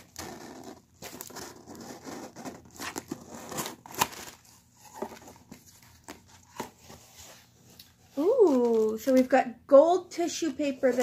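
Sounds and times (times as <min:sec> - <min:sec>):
tape tearing: 0:00.0 - 0:06.8.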